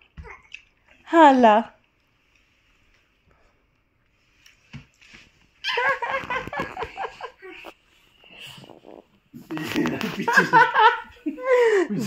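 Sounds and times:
toddler giggling: 0:05.6 - 0:07.7.

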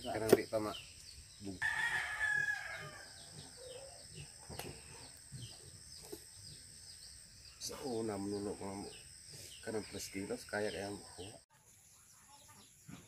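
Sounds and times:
faint chirping: 0:00.0 - 0:13.0
rooster crowing: 0:01.6 - 0:04.0.

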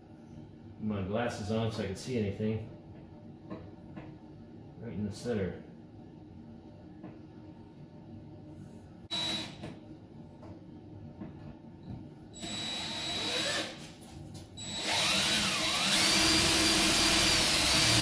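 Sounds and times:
drill hole saw cutting metal: 0:09.1 - 0:09.5, 0:12.4 - 0:13.8, 0:14.6 - 0:18.0.

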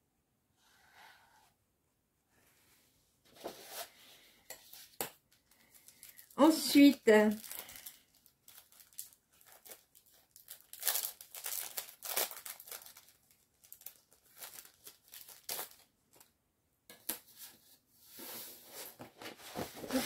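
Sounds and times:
plastic packaging crinkling: 0:05.4 - 0:16.3.

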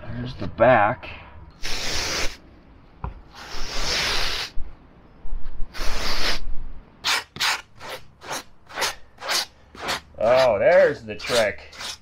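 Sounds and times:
fabric ripping: 0:07.0 - 0:10.5.

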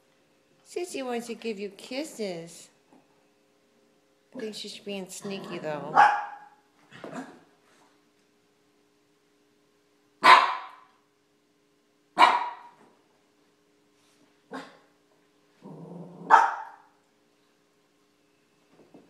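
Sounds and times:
small dog barking: 0:05.9 - 0:07.3, 0:10.2 - 0:10.9, 0:12.2 - 0:12.8, 0:14.5 - 0:14.8, 0:16.2 - 0:16.9
dog growling low: 0:15.6 - 0:16.3.

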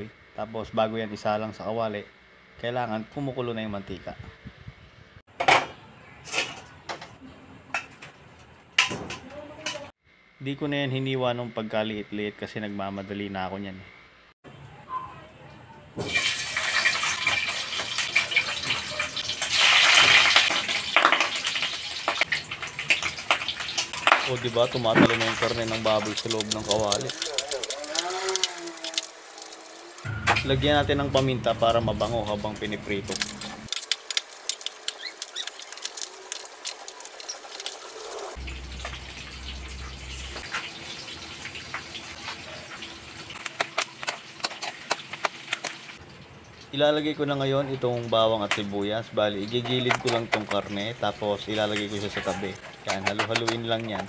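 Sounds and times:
meat sizzling in hot oil: 0:16.1 - 0:30.1, 0:33.1 - 0:46.0.

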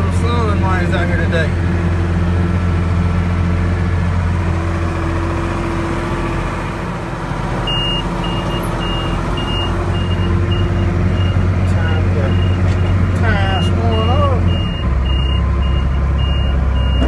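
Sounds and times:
tractor diesel engine running: 0:00.0 - 0:17.0
electronic alarm beeping: 0:07.7 - 0:11.4, 0:13.9 - 0:17.0.

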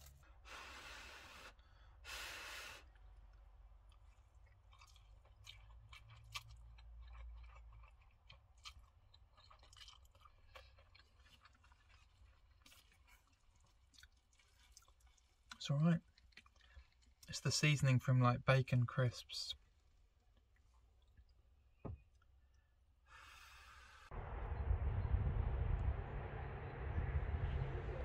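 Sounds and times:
slurping and chewing noodles: 0:02.6 - 0:17.3
small wet clicks: 0:03.0 - 0:17.3.

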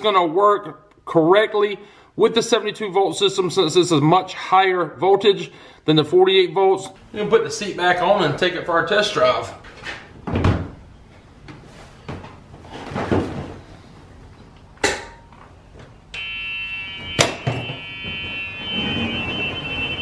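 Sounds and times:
steady high tone: 0:16.2 - 0:20.0.

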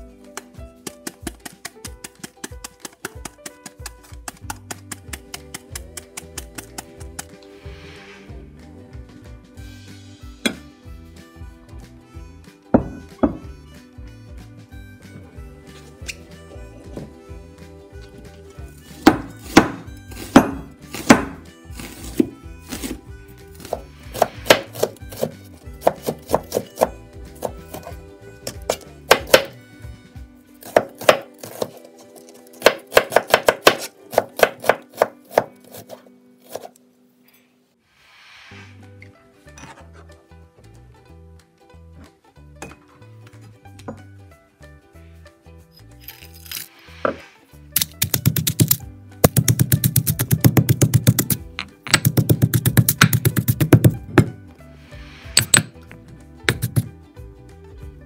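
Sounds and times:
pestle pounding in stone mortar: 0:00.4 - 0:07.3, 0:12.8 - 0:13.4, 0:19.0 - 0:23.0, 0:23.6 - 0:27.9, 0:28.5 - 0:29.6, 0:30.6 - 0:31.8, 0:32.6 - 0:35.9, 0:47.8 - 0:54.4, 0:55.4 - 0:55.8, 0:56.5 - 0:56.9
knife knocking on cutting board: 0:12.8 - 0:13.4.

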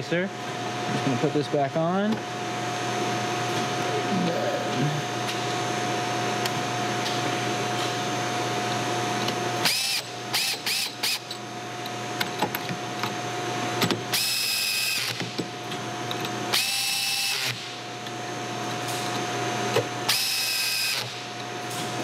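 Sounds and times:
cordless drill driving bolts: 0:09.6 - 0:11.2.

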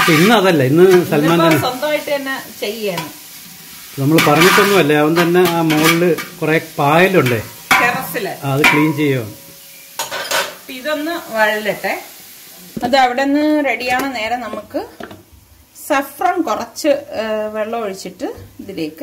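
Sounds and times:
onions sizzling in oil: 0:00.0 - 0:19.0
person talking: 0:04.0 - 0:09.4
metal spatula clinking on pot: 0:04.2 - 0:06.4, 0:07.2 - 0:10.6.

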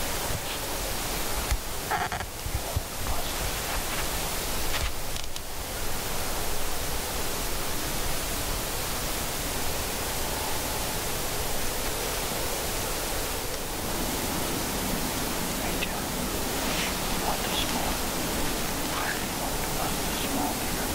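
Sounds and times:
steady hiss: 0:00.0 - 0:20.9
brief rustle: 0:04.7 - 0:05.4.

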